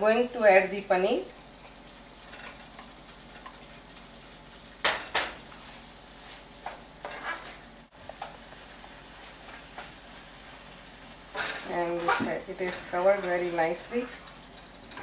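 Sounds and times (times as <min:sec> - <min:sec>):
gravy sizzling in a pan: 0:00.0 - 0:15.0
spatula scraping and tapping pan: 0:01.6 - 0:03.7, 0:04.8 - 0:10.0, 0:11.3 - 0:15.0.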